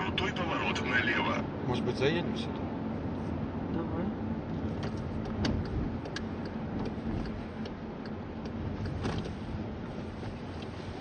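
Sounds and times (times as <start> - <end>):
engine and road rumble: 0.0 - 11.0
turn signal clicking: 4.8 - 9.4, 10.4 - 10.8.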